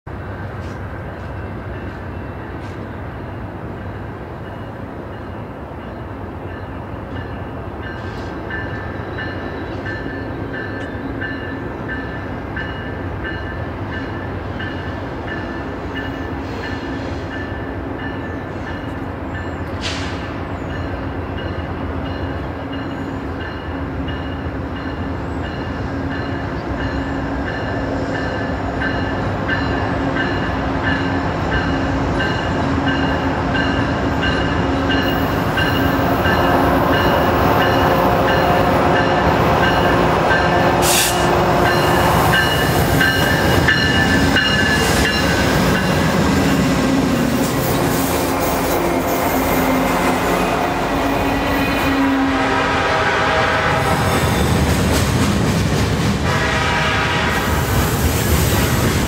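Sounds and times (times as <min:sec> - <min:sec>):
diesel locomotive rumble: 0:24.8 - 0:59.0
rising squeal: 0:53.8 - 0:54.8.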